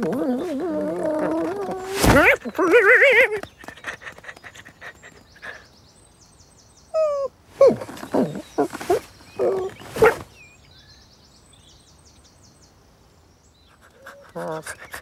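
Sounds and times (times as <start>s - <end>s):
person making dog noises: 0.0s - 5.6s, 13.9s - 15.0s
faint bird chirping: 0.0s - 15.0s.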